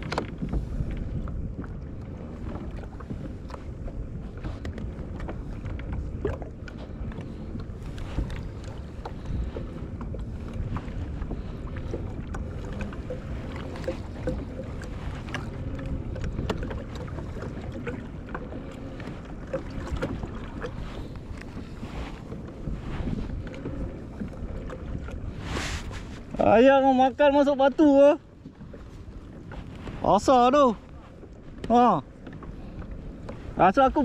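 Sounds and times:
water lapping against kayak hull: 0.0 - 34.0
wind rumbling on microphone: 0.0 - 34.0
small water splashes: 4.4 - 26.8.

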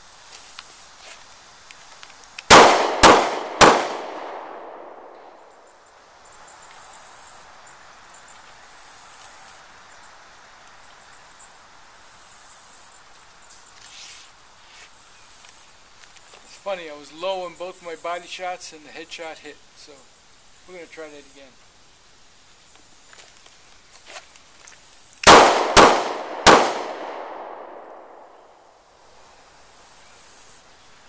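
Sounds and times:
pistol shots with echo: 2.5 - 5.6, 25.2 - 28.5.

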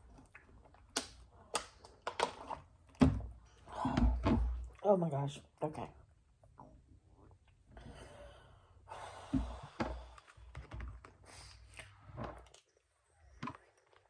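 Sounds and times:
long breath out: 7.8 - 10.4.

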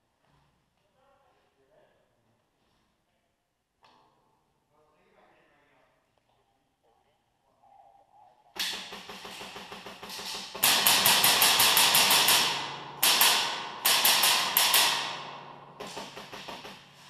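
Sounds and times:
airsoft rifle automatic fire: 8.6 - 17.0.

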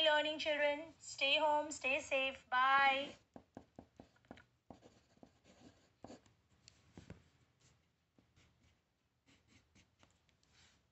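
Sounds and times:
pencil scratching on paper: 3.0 - 6.4, 7.5 - 10.9.

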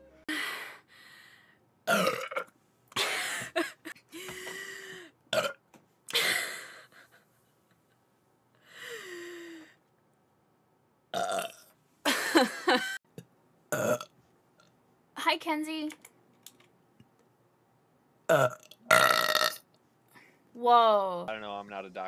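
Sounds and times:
woman belching: 1.9 - 2.5, 5.3 - 5.6, 11.2 - 11.6, 13.7 - 14.1, 18.3 - 19.6.

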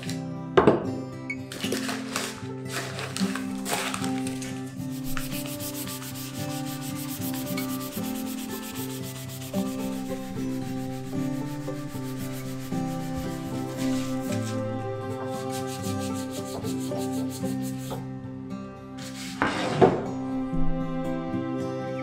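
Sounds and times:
soft background music: 0.0 - 22.0
scratchy rubbing of wood: 3.3 - 18.0.

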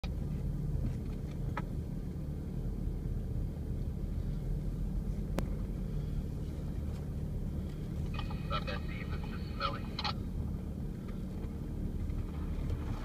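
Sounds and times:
vehicle engine running low: 0.0 - 13.0.

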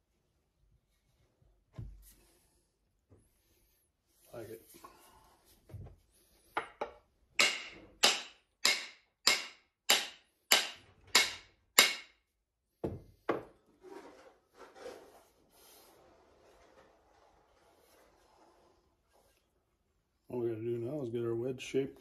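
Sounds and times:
hammer striking axe head: 6.6 - 12.2.

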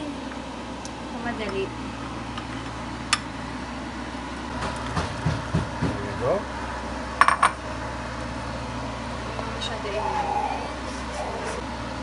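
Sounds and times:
steady low hum: 0.0 - 12.0
murmured voice: 9.4 - 11.6.

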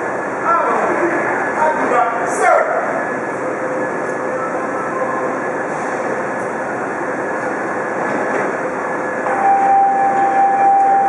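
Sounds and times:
subway train and station hum: 0.0 - 11.0
clear steady tone: 9.2 - 11.0.

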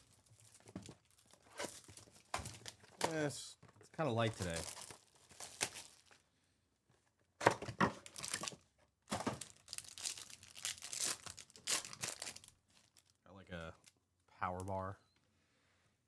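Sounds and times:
foil wrapper crinkling and tearing: 4.1 - 6.2, 8.0 - 8.6, 9.3 - 13.2.

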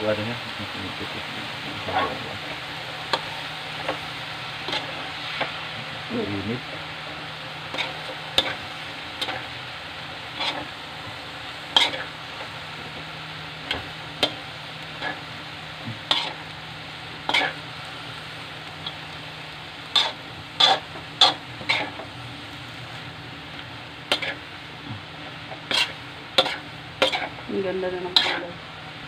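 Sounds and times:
vegetables and meat sizzling in wok: 0.0 - 29.0
spatula scraping and knocking wok: 1.6 - 5.9, 7.6 - 9.6, 10.2 - 13.0, 13.6 - 15.2, 15.8 - 16.5, 17.2 - 17.7, 19.8 - 22.2, 23.6 - 28.6.

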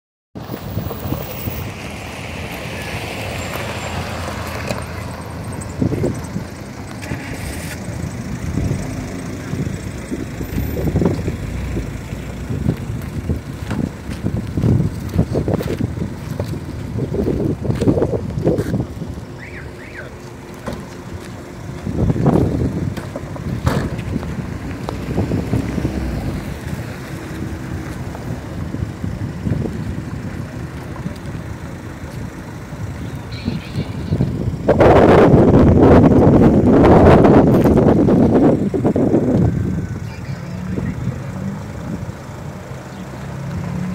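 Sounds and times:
vehicle engine running: 0.4 - 43.9
wind on microphone: 5.6 - 6.6, 8.4 - 19.3, 21.8 - 31.2, 33.4 - 40.0.

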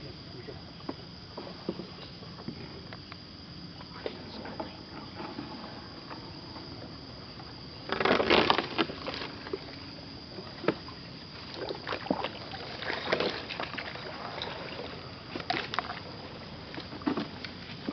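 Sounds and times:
faint high whine: 0.0 - 17.9
paddle splashes: 7.8 - 17.9.

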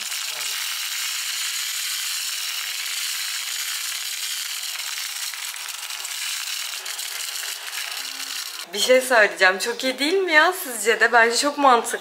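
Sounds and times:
mini vacuum running: 0.0 - 8.7.

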